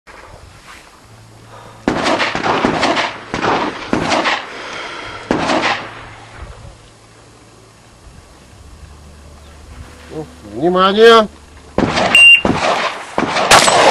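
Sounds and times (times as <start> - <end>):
shotgun shots with ringing echo: 1.9 - 4.5, 5.3 - 6.1, 11.8 - 13.9.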